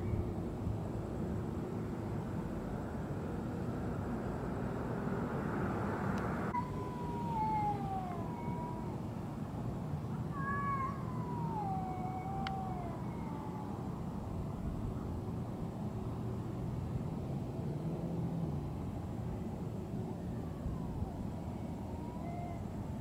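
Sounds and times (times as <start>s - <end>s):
cat yowling: 6.6s - 9.1s, 10.1s - 13.9s, 21.0s - 22.8s.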